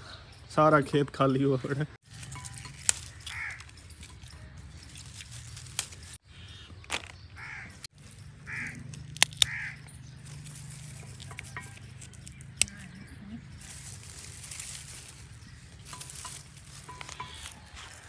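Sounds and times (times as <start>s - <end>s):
pea pods snapping: 2.1s - 18.0s
crow cawing: 3.0s - 3.8s, 7.4s - 10.0s.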